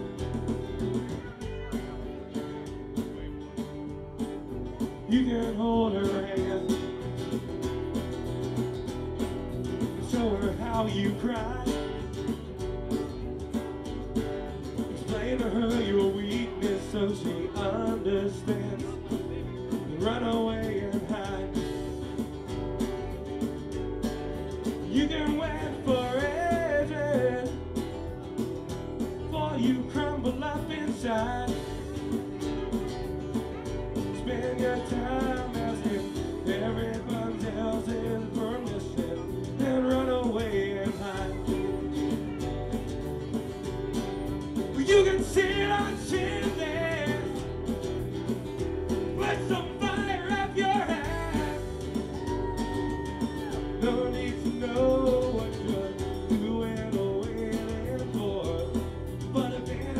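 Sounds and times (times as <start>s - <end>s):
band playing guitars: 0.0s - 59.9s
person singing: 4.8s - 7.1s, 14.9s - 22.2s, 24.8s - 27.6s, 29.2s - 32.2s, 33.6s - 42.4s, 44.6s - 47.6s, 49.1s - 59.9s.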